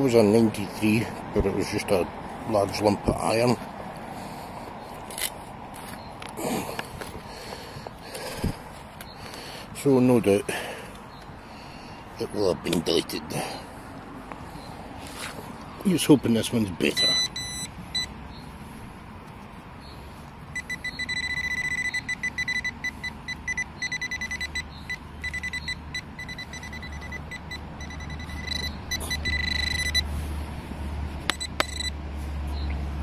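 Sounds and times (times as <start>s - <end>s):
metal detector probe beeping: 16.8s - 18.2s, 20.5s - 30.1s, 31.2s - 32.0s.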